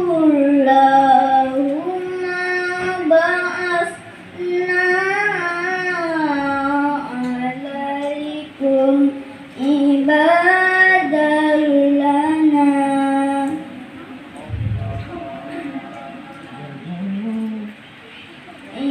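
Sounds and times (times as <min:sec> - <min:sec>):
boy reciting melodically: 0:00.0 - 0:14.0, 0:18.6 - 0:18.9.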